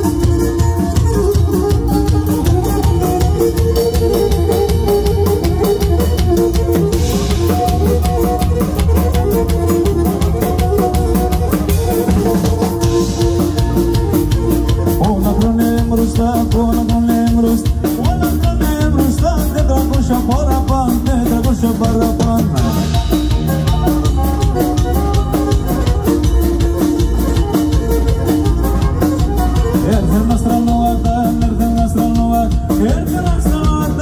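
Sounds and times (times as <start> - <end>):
lyra melody: 0.0 - 16.8
drum kit beat: 0.0 - 34.0.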